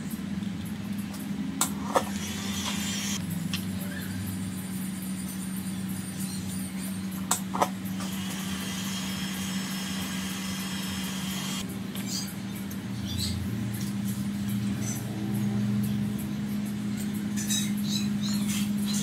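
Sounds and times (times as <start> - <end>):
heat gun fan humming: 1.6 - 3.6, 7.1 - 11.8.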